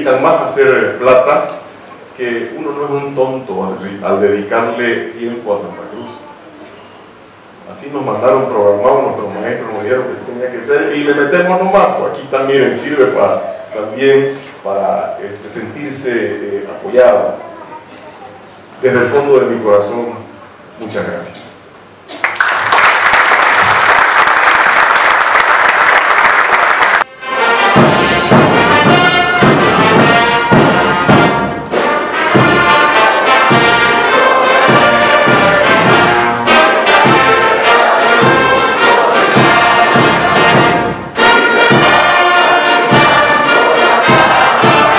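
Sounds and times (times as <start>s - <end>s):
audience applauding: 22.1s - 27.1s
brass band music: 26.3s - 44.9s.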